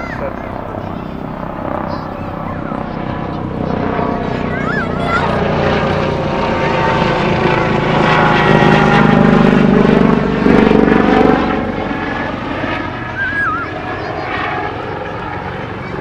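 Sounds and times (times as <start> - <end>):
engine drone passing by: 0.0 - 16.0
gosling peeping: 13.0 - 15.2.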